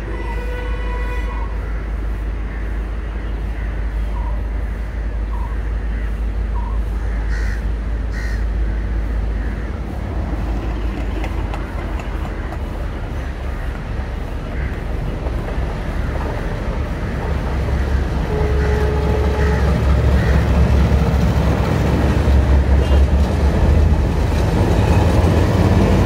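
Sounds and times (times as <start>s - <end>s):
distant diesel locomotive rumble: 0.0s - 26.0s
crows cawing: 7.0s - 9.9s, 13.1s - 15.1s, 17.7s - 20.9s.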